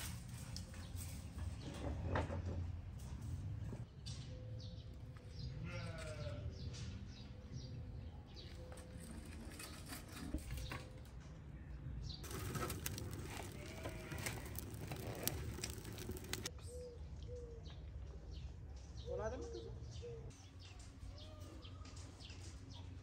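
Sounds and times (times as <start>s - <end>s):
birds chirping: 3.8s - 17.4s
wood fire crackling and popping: 12.2s - 16.5s.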